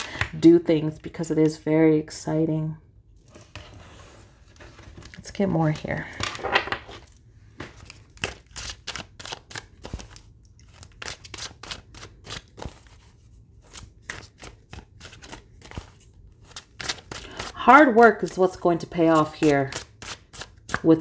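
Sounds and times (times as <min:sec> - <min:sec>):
cards being shuffled: 0:04.6 - 0:17.6.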